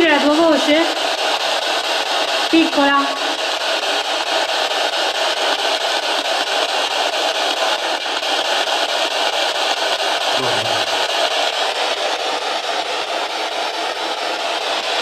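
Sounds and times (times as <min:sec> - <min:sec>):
radio static sweeping: 0:10.4 - 0:11.2.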